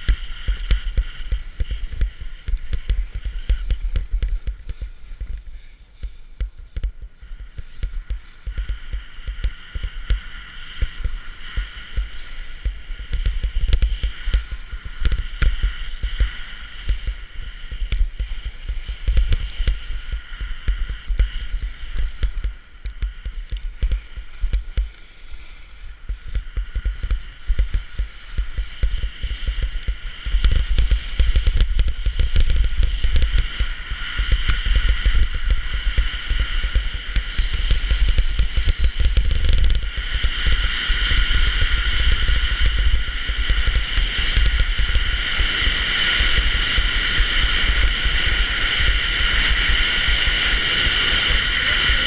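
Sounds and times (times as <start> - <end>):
wind buffeting microphone: 0.0 - 52.0
skis scraping over hard snow: 23.2 - 52.0.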